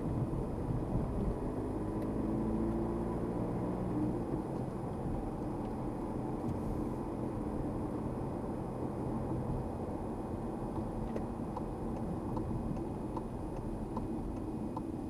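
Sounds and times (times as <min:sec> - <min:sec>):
car engine and tyre hum: 0:00.0 - 0:15.0.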